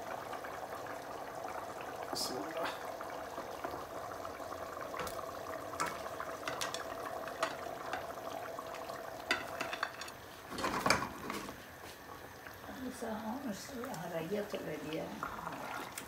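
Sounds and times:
sauce sizzling: 0:00.0 - 0:16.0.

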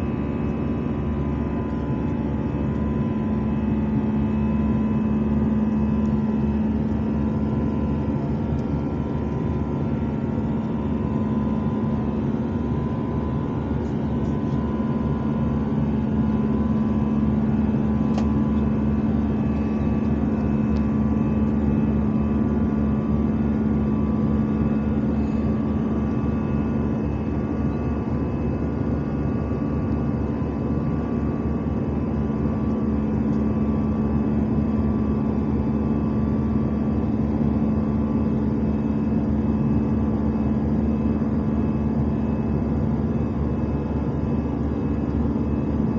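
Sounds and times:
constant low hum: 0:00.0 - 0:45.9
jet engine and airflow rush: 0:00.0 - 0:45.9.

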